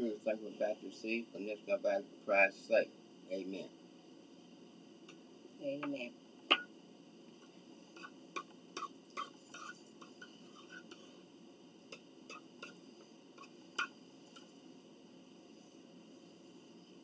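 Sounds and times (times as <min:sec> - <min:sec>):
fork clicking on dishes: 0:11.9 - 0:12.8, 0:13.4 - 0:14.5.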